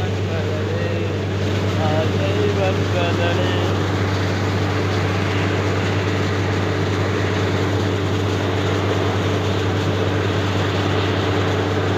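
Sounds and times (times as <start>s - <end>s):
air and water hissing: 0.0s - 11.9s
engine and compressor drone: 0.0s - 11.9s.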